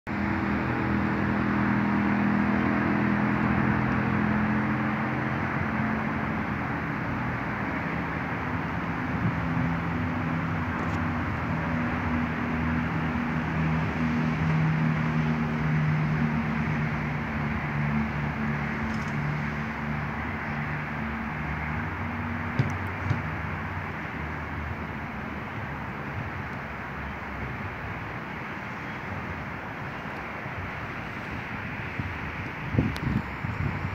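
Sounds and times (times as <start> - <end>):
rushing background noise: 0.1 - 33.9.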